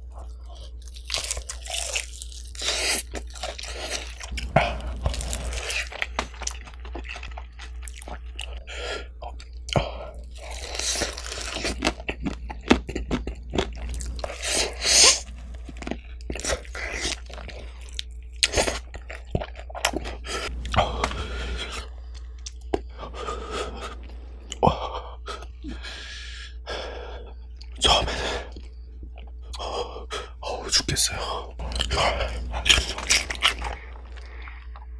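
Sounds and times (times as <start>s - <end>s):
chewing with wet crunches: 0.0s - 24.6s, 31.6s - 34.9s.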